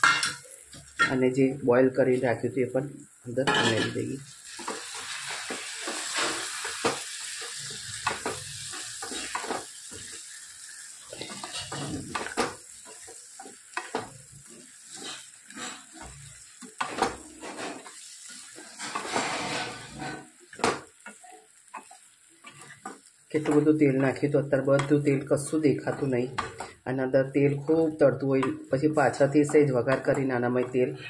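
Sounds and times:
oil and spices sizzling in pan: 0.0 - 31.0
spoon scraping and knocking pan: 11.1 - 23.7, 24.6 - 26.8, 28.3 - 30.8.

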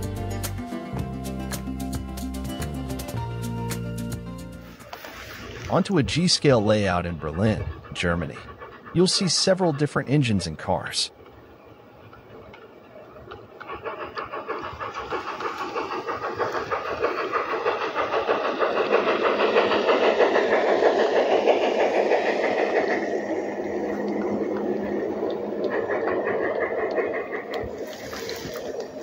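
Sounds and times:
model train wheels rattling on rails: 4.9 - 11.1, 12.1 - 29.0.

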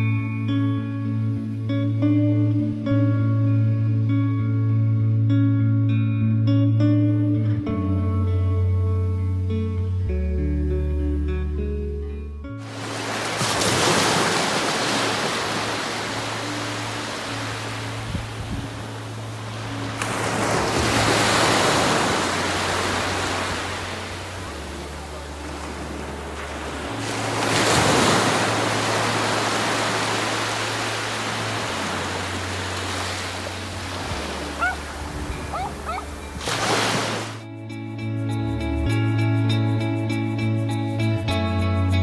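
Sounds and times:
small waves breaking on shore: 12.6 - 37.4.

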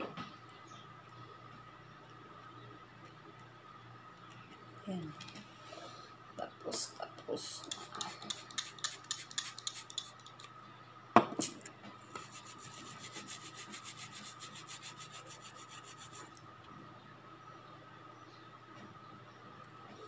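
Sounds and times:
nail file scraping: 7.6 - 10.5, 12.1 - 16.4.

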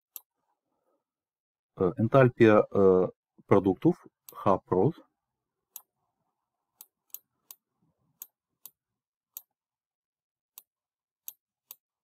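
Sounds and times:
computer mouse clicks: 10.5 - 11.9.

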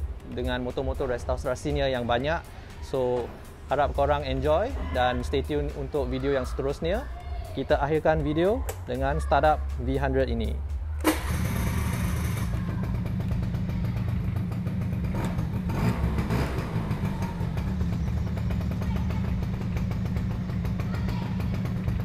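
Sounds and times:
scooter engine idling: 0.0 - 10.0, 10.8 - 22.0.

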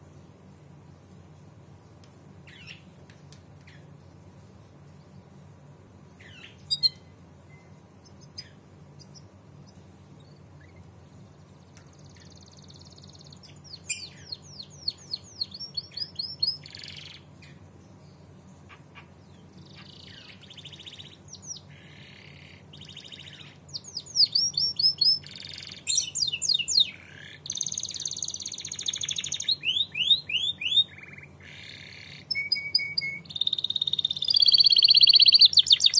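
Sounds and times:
canary singing: 2.5 - 2.9, 6.2 - 11.0, 11.8 - 17.6, 18.6 - 35.9.

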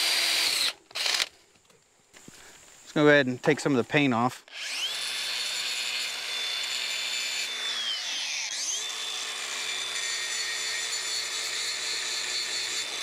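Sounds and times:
angle grinder whining: 0.0 - 1.3, 4.5 - 13.0.

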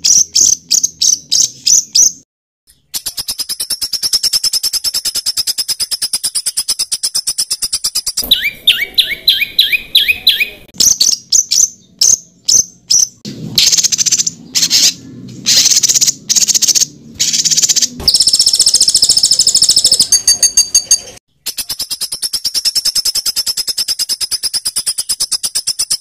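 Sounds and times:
harsh rasping bird calls: 0.0 - 26.0
sharp high bird chips: 0.0 - 26.0
fast high bird trill: 2.7 - 11.8, 13.6 - 26.0
rising whistled bird notes: 2.8 - 11.7.

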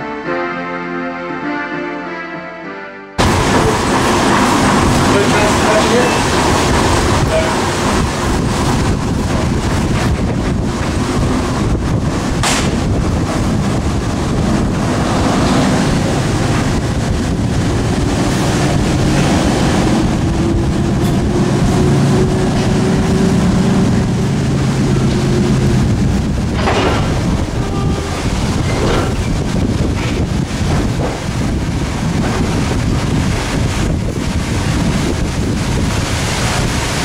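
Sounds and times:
coaches rolling on rails: 3.2 - 37.0
diesel locomotive engine working: 3.2 - 37.0
wind buffeting microphone: 3.2 - 37.0.

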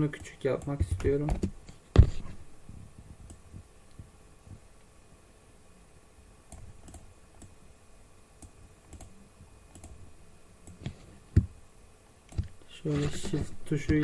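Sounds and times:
computer mouse and keyboard clicks: 6.5 - 7.6, 8.4 - 10.0, 12.3 - 14.0.

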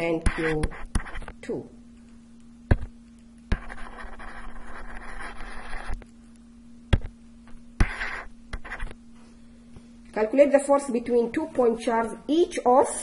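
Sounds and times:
stylus scratching on tablet: 0.0 - 1.4, 3.5 - 6.1, 7.0 - 9.0
steady low hum: 0.0 - 13.0
stylus tapping on tablet: 2.7 - 2.9, 6.9 - 9.0.

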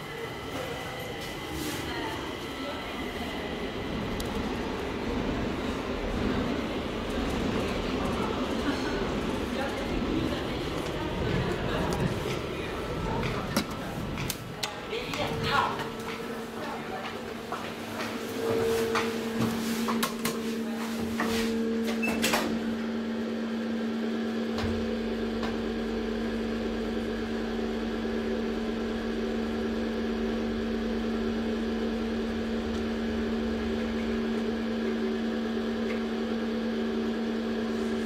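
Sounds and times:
elevator car rumbling: 0.0 - 23.3
elevator hum: 0.0 - 38.0.

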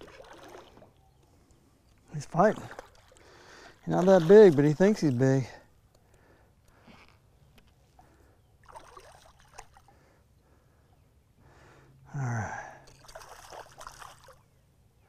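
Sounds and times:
man exhaling with a grunt: 12.1 - 12.8.

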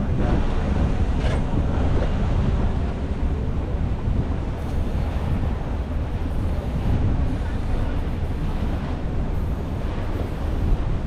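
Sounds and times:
water noise: 0.0 - 11.0
wind buffeting microphone: 0.0 - 11.0.

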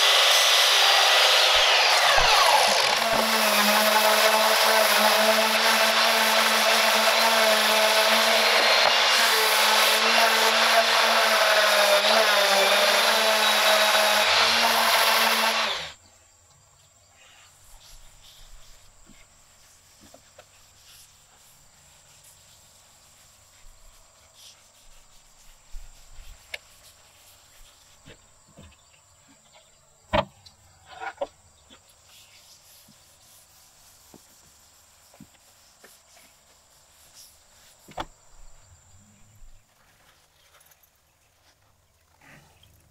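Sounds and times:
orbital sander motor whine: 0.0 - 16.0
hand rubbing oil into wood: 17.6 - 28.3, 31.7 - 38.1.

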